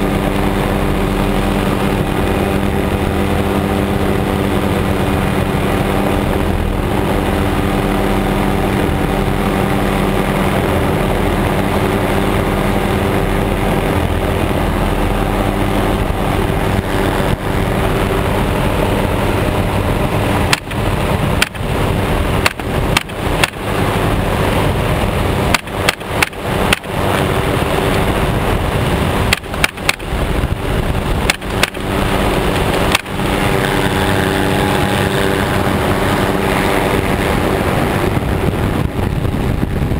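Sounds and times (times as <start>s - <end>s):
helicopter engine and rotor: 0.0s - 39.6s.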